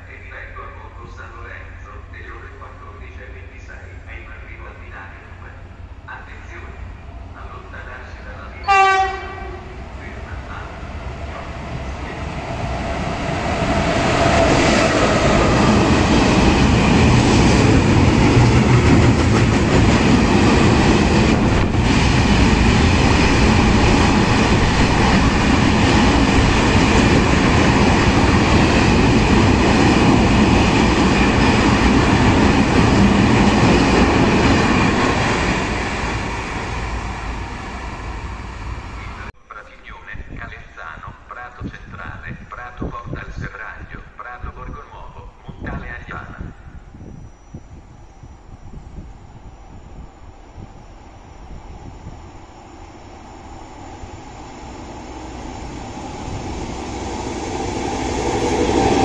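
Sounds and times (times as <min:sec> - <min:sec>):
freight train wheels clattering: 0:13.8 - 0:35.8.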